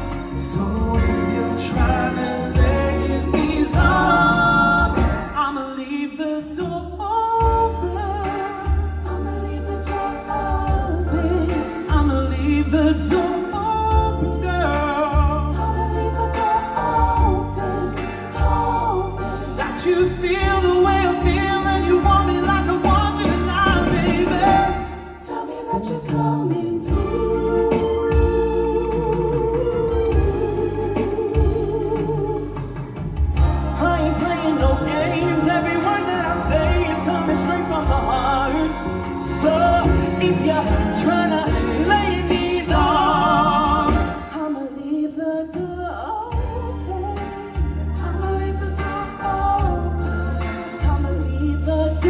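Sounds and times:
bass guitar: 0.0s - 5.6s, 6.6s - 25.1s, 26.2s - 44.4s, 46.3s - 52.0s
men singing: 0.0s - 6.8s, 7.4s - 32.7s, 33.3s - 44.7s, 46.3s - 52.0s
drums: 0.0s - 52.0s
live band playing: 0.0s - 52.0s
steady bass beat: 30.1s - 44.2s.

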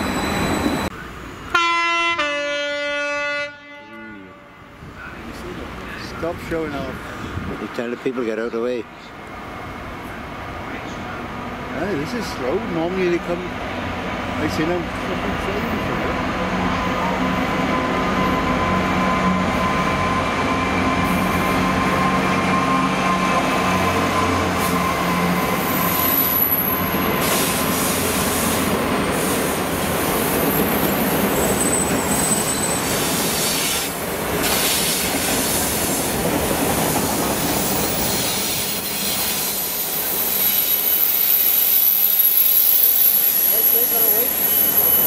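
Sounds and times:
high thin wheel squeal: 0.0s - 0.9s, 19.5s - 29.5s, 30.2s - 33.8s, 37.5s - 45.0s
diesel locomotive engine: 0.0s - 45.0s.

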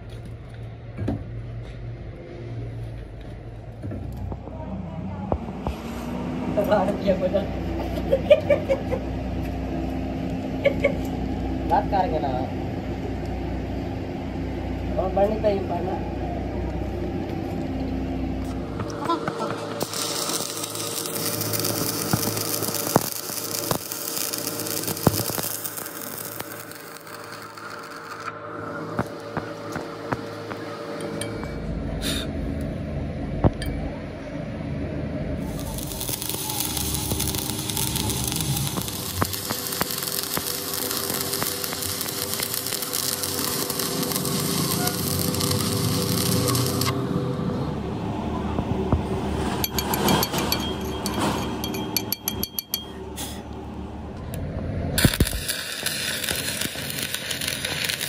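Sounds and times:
steady low hum: 0.0s - 58.0s
welding arc crackling and hissing: 18.6s - 30.8s, 35.4s - 47.1s, 55.0s - 58.0s
metallic clinks of hand tools: 49.6s - 53.0s.

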